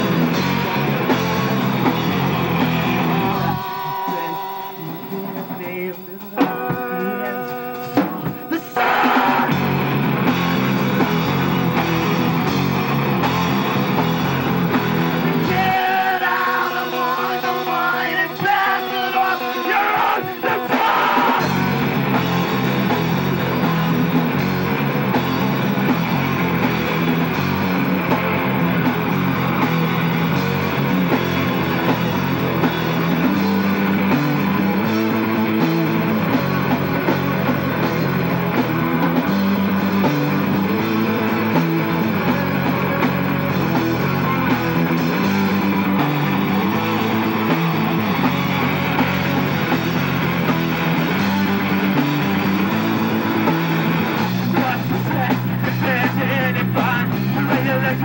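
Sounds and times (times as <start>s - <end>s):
live rock band playing: 0.0s - 58.0s
person singing: 2.9s - 9.9s, 15.2s - 21.9s, 54.4s - 58.0s.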